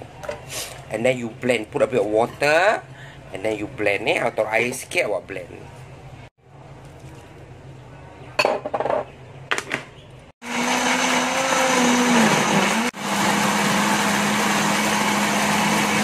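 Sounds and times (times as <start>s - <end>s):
electric blender running: 10.4s - 16.0s.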